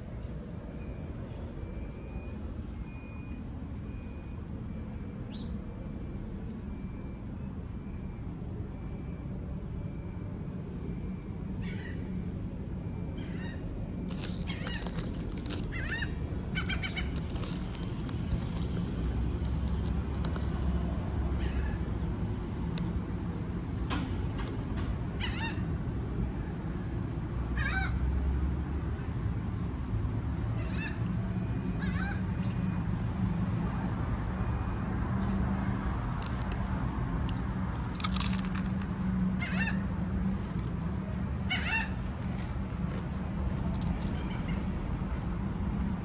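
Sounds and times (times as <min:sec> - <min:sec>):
gulls calling: 0:11.4 - 0:18.0.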